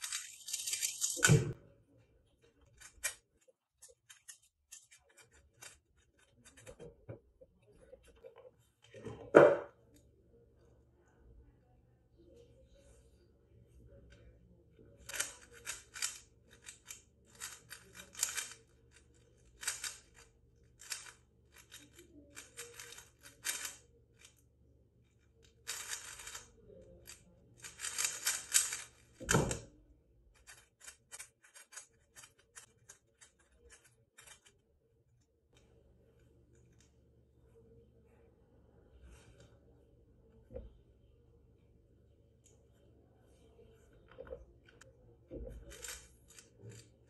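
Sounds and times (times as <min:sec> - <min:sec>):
plastic cube clicking: 0:15.0 - 0:18.6, 0:19.6 - 0:20.2, 0:20.8 - 0:24.3, 0:25.6 - 0:26.5, 0:27.6 - 0:29.6.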